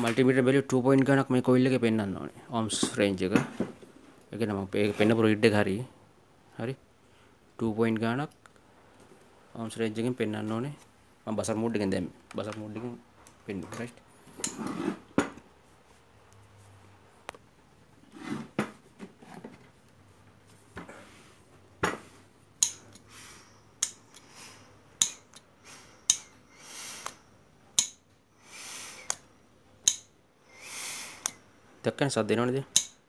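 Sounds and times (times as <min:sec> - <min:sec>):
metal probes clicking on metal: 0:22.6 - 0:23.1, 0:23.8 - 0:24.3, 0:25.0 - 0:28.1, 0:28.9 - 0:30.2, 0:31.2 - 0:31.4, 0:32.7 - 0:33.0.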